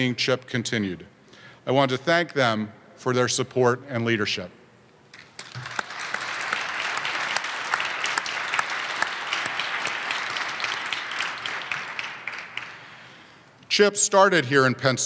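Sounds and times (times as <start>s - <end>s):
audience applauding: 5.1s - 13.2s.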